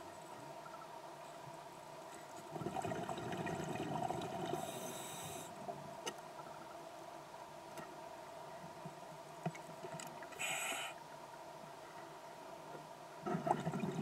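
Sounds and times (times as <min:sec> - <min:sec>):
faint steady hum: 0:00.0 - 0:14.0
bubbling exhale underwater: 0:02.5 - 0:04.8, 0:13.2 - 0:14.0
regulator inhalation hiss: 0:04.6 - 0:05.5, 0:10.4 - 0:11.0.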